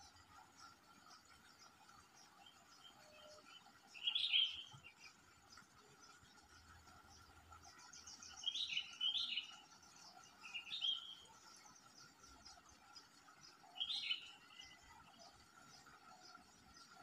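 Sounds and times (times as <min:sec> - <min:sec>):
bird warbling calls: 0:03.0 - 0:04.9, 0:10.4 - 0:11.2, 0:13.7 - 0:14.8.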